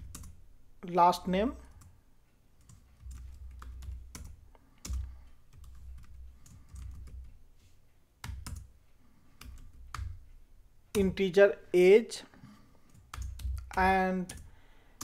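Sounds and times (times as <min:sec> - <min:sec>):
computer keyboard typing: 0:00.0 - 0:00.4, 0:01.5 - 0:01.9, 0:02.6 - 0:07.4, 0:08.2 - 0:08.7, 0:09.3 - 0:10.2, 0:12.8 - 0:15.0.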